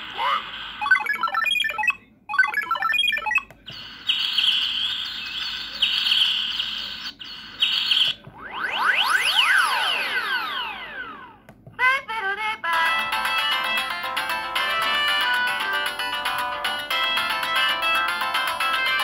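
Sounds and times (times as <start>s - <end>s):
synthesized chirping ringtone: 0.8s - 6.3s, 12.7s - 19.0s
rising and falling synth sweeps: 8.4s - 11.4s.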